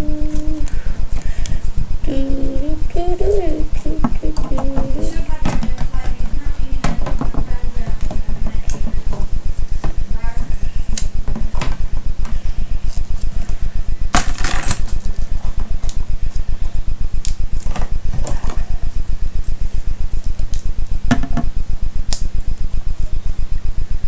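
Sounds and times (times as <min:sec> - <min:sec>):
pulsing low hum: 0:00.0 - 0:24.0.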